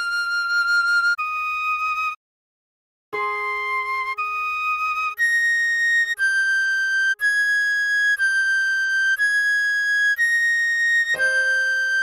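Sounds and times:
recorder playing slow melody: 3.2s - 6.3s, 11.0s - 12.0s
soft low chord tone: 11.2s - 12.0s.

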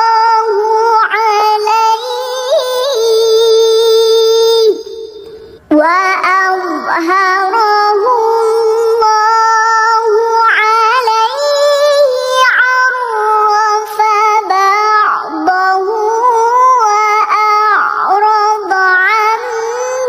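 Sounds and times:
girl chanting melodically: 0.0s - 20.0s.

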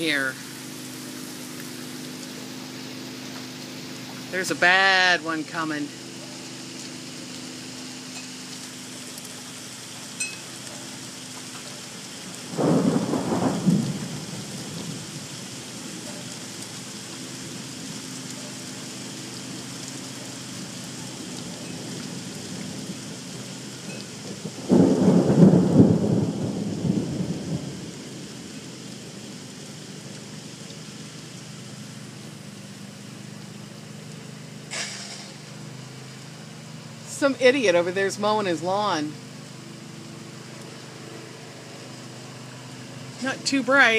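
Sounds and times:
thunder rolling: 12.5s - 15.3s, 24.3s - 28.0s.

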